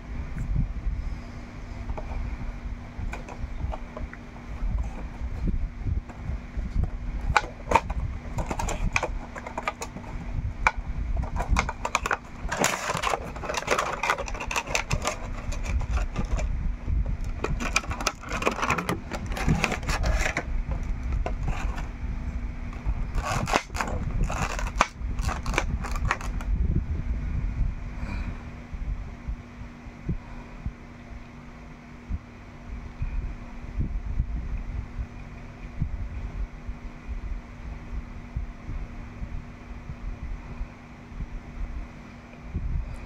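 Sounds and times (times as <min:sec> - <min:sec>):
cardboard box handling: 0:07.3 - 0:10.2, 0:11.2 - 0:16.5, 0:17.2 - 0:21.9
plastic crinkling: 0:07.3 - 0:10.2, 0:11.2 - 0:16.5, 0:17.2 - 0:21.9, 0:22.7 - 0:26.4.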